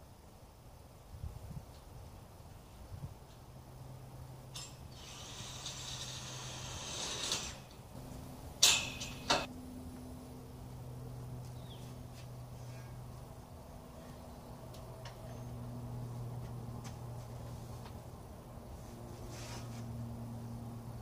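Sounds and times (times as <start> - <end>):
drill driving screw into steel: 4.6 - 7.8.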